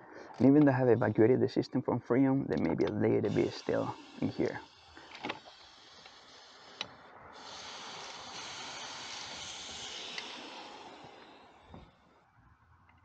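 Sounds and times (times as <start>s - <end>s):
gas hissing from valve fitting: 3.1s - 12.1s
wrench clicks: 7.6s - 11.3s.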